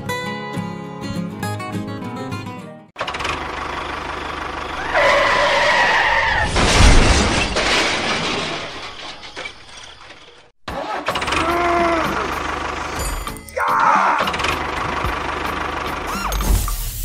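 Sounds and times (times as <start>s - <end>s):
vehicle engine: 3.0s - 6.8s, 9.0s - 13.3s, 14.3s - 16.7s
loud crash: 4.8s - 10.5s.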